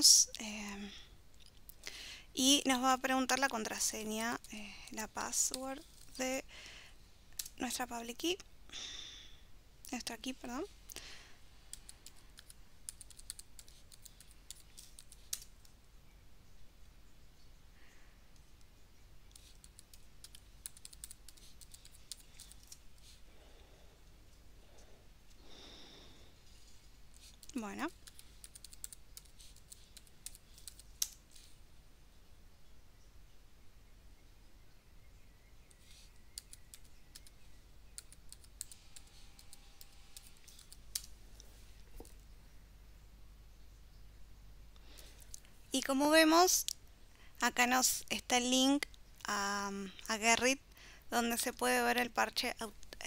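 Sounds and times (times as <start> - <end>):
typing on computer keyboard: 11.7 - 15.5, 19.3 - 22.8, 27.2 - 31.2, 38.0 - 41.1.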